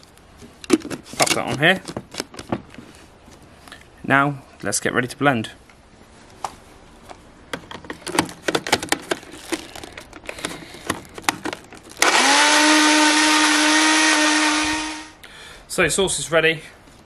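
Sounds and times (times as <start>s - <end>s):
blender motor whining: 12.0s - 15.2s.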